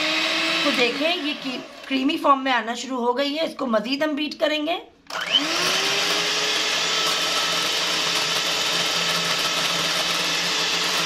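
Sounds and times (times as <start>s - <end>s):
electric hand mixer whirring: 0.0s - 2.4s, 5.1s - 11.0s.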